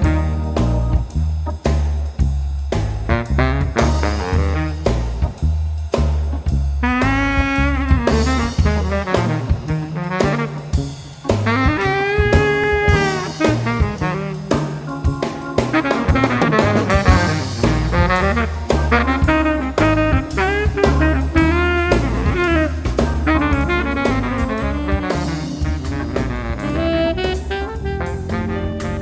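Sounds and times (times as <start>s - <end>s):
jazzy electronic music: 0.0s - 29.0s.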